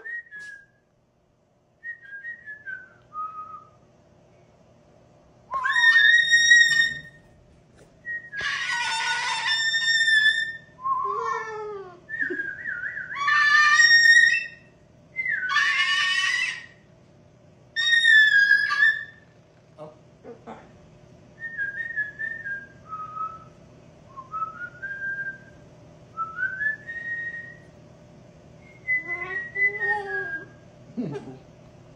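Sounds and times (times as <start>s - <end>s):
man whistling: 0.0s - 0.8s, 26.2s - 27.6s
cockatoo screeches: 5.5s - 7.2s, 8.4s - 11.6s, 13.1s - 16.8s, 17.8s - 19.2s.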